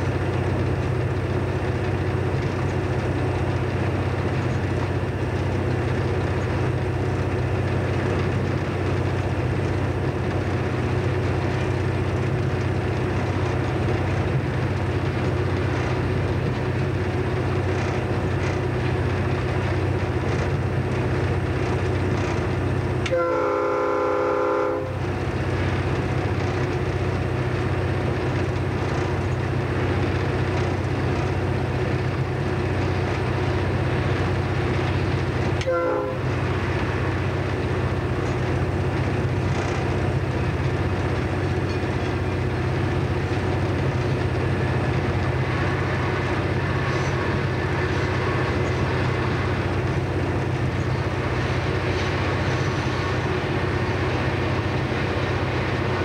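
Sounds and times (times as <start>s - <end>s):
diesel locomotive engine droning: 0.0s - 56.0s
train horn blast: 23.0s - 25.0s, 35.6s - 36.4s.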